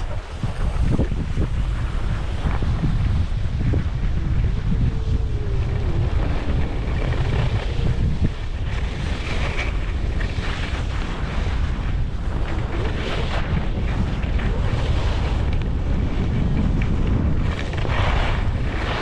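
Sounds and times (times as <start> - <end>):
skis sliding over snow: 0.0 - 19.0
wind buffeting microphone: 0.0 - 19.0.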